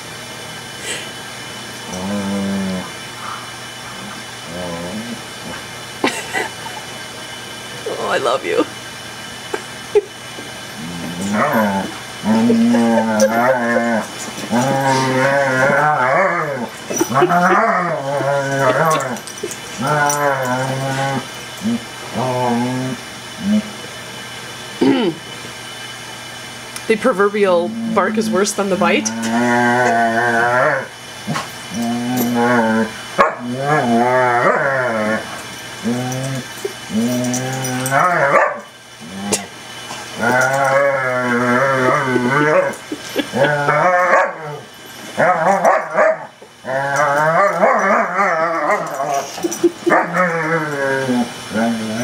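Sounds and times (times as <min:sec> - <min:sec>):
dog moaning growls: 0:01.8 - 0:07.0, 0:09.4 - 0:23.9, 0:24.8 - 0:25.3, 0:27.4 - 0:52.0.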